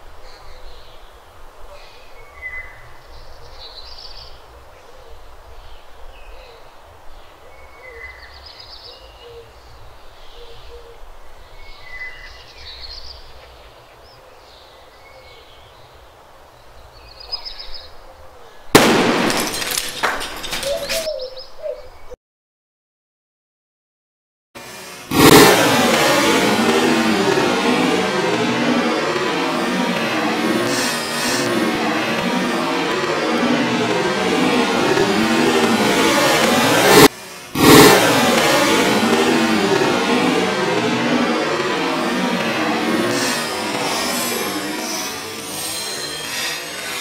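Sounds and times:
birds chirping: 0.2 - 22.2
firecracker blast in clay pot: 18.8 - 21.0.

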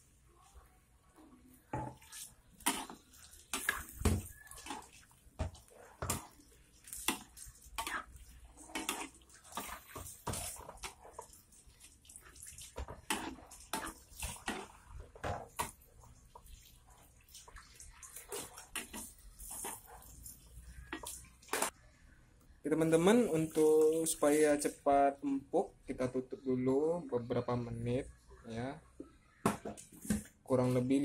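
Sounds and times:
liquid sloshing: 1.8 - 21.7
metal spatula scraping a wok: 2.0 - 11.3.

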